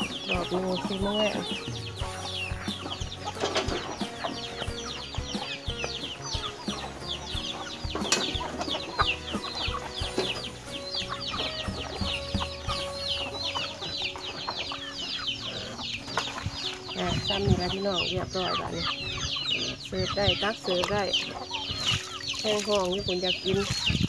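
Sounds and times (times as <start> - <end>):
chickens clucking: 0.0 - 24.0
chickens peeping: 0.0 - 24.0.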